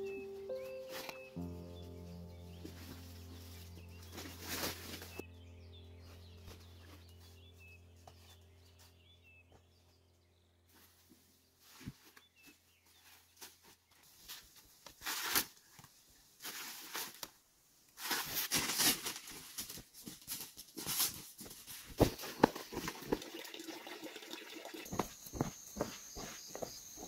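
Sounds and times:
dry leaves rustling and crackling: 2.6s - 5.3s.

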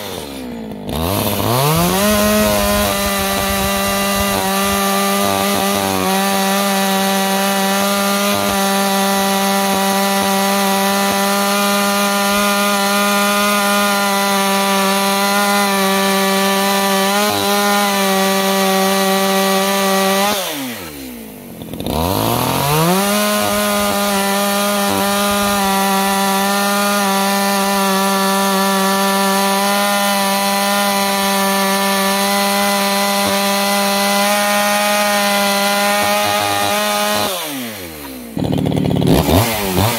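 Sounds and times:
chainsaw cutting wood: 0.0s - 39.9s.

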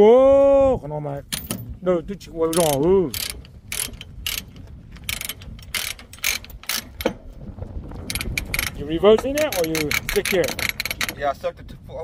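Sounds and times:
ratchet pawl clicking: 2.5s - 7.1s, 8.0s - 11.2s.

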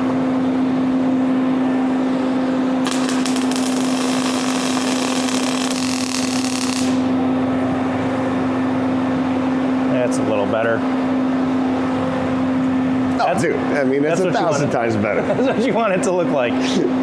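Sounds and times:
steady low hum: 0.0s - 17.0s
welding arc crackling: 2.8s - 7.2s.

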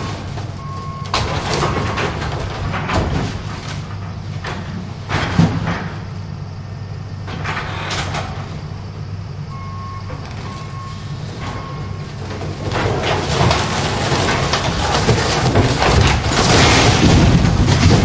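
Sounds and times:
excavator engine humming: 0.0s - 18.0s
rough demolition noise: 0.0s - 18.0s
alarm beeps: 9.5s - 12.0s.

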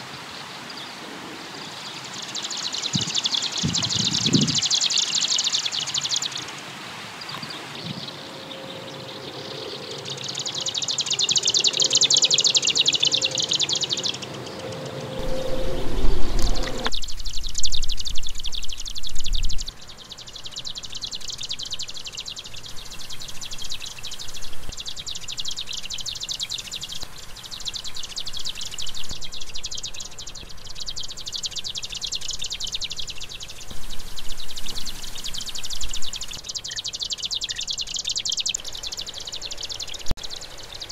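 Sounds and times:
bird chattering song: 1.9s - 6.6s, 7.3s - 40.9s
low rumble: 15.0s - 19.8s.

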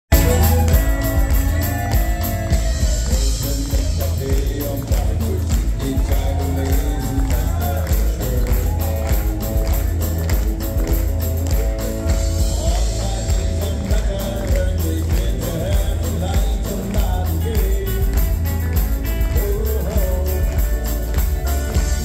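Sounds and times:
country band playing live: 0.1s - 22.0s
drums beat: 0.1s - 22.0s.

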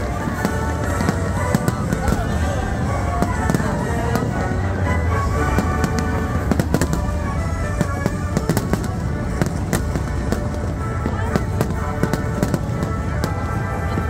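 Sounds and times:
crowd voices: 0.0s - 14.0s
fireworks bangs: 0.0s - 14.0s
orchestral music: 0.0s - 14.0s.

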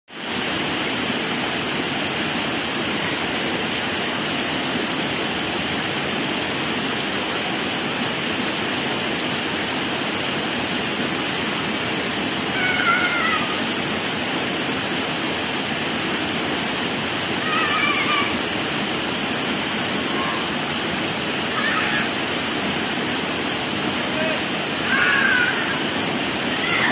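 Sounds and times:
waterfall pouring over rocks: 0.1s - 26.9s
high-pitched wavering cry: 12.6s - 13.6s, 17.4s - 18.4s, 24.8s - 25.9s.

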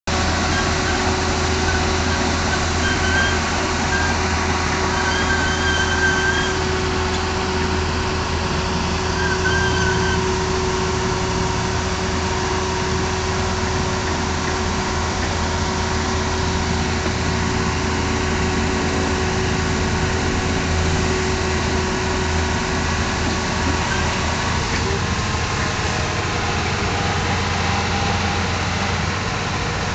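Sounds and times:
heavy machine engine idling: 0.1s - 29.9s.

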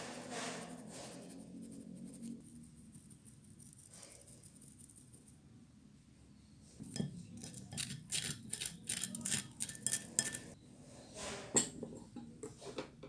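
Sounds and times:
metal spoon scraping a mesh sieve: 0.0s - 4.9s, 6.8s - 11.6s.

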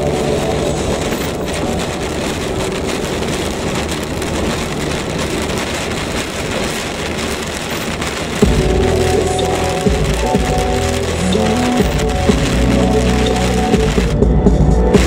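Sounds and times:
rain on car windshield: 0.0s - 14.2s
road and engine noise: 0.0s - 15.0s.

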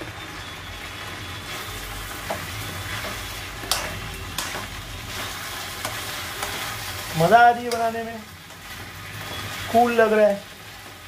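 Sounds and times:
vegetables sizzling in pan: 0.0s - 11.0s
spoon clicking on pan: 3.6s - 4.6s.

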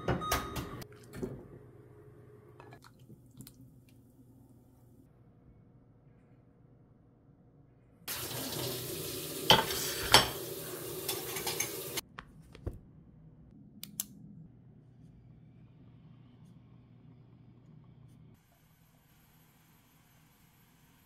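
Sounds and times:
kitchen tap running: 8.1s - 12.0s
crockery clinking: 11.0s - 12.0s
dishes set down: 11.1s - 11.8s.

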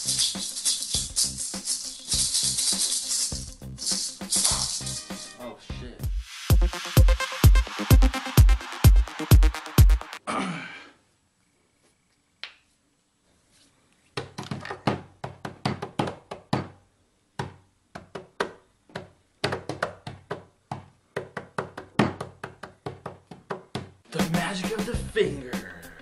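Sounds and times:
electronic dance music sting: 6.1s - 10.2s.

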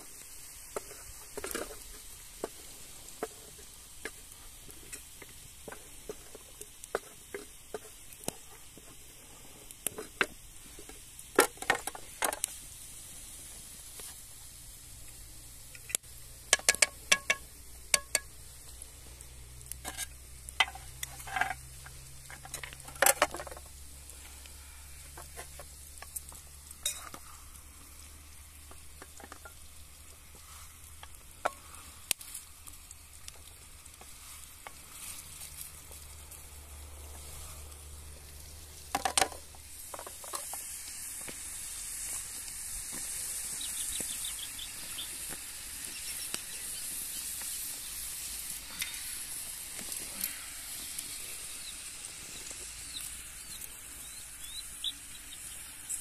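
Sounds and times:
food sizzling in a pan: 0.0s - 56.0s
utensil clinking and scraping: 19.8s - 23.7s.

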